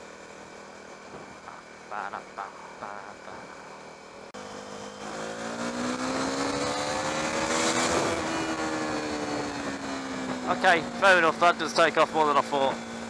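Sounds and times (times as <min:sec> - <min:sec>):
motorcycle engine accelerating: 0:00.0 - 0:13.0.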